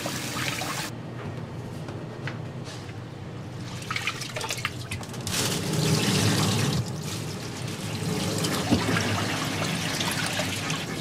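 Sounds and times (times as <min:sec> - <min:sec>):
water sloshing and splashing: 0:03.6 - 0:11.0.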